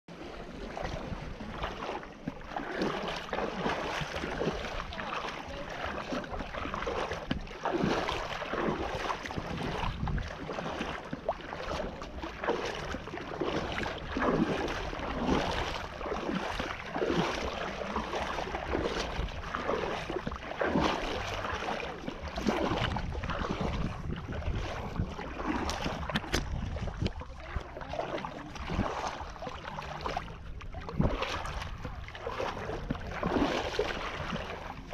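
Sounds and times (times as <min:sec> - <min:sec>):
waves slapping against boat: 0:00.1 - 0:34.9
wind buffeting microphone: 0:06.8 - 0:10.8, 0:18.4 - 0:29.4.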